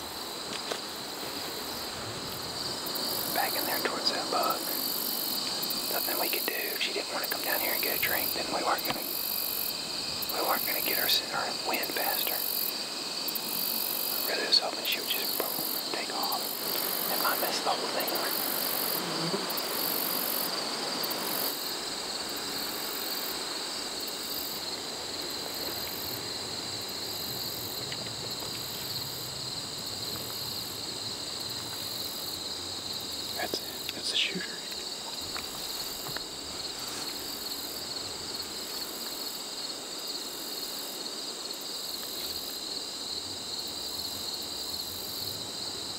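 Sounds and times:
insects chirping in high trill: 0.0 - 45.9
faint ticks: 3.0 - 9.6, 14.0 - 20.4, 27.6 - 29.1, 33.4 - 34.0, 34.6 - 37.2.

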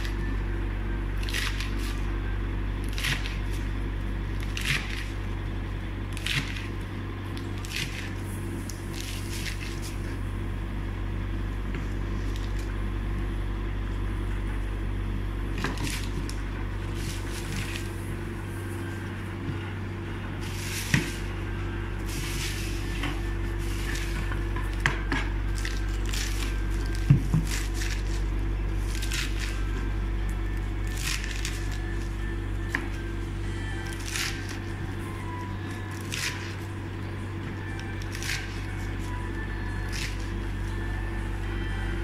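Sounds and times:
steady low hum: 0.0 - 42.0
knife slicing lettuce: 1.2 - 2.0, 7.4 - 10.1, 25.5 - 29.8, 30.8 - 32.2, 33.8 - 35.3, 35.9 - 36.7, 37.8 - 40.9.

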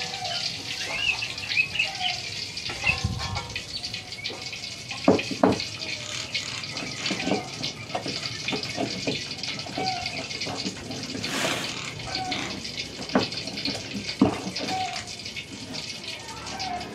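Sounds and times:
oil sizzling in a wok: 0.0 - 16.9
kitchen utensils knocking and scraping: 4.3 - 6.0, 6.7 - 14.9.

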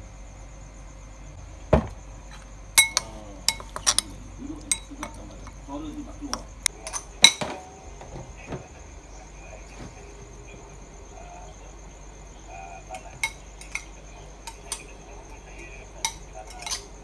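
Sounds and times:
metal spoon clinking on glass bowl: 2.8 - 5.6, 13.2 - 14.9, 16.0 - 17.0.

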